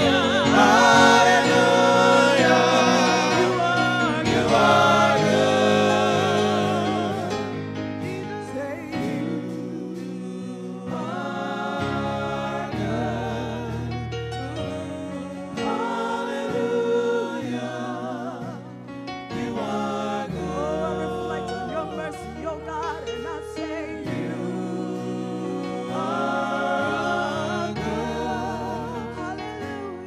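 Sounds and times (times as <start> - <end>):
group singing gospel song: 0.0 - 30.0.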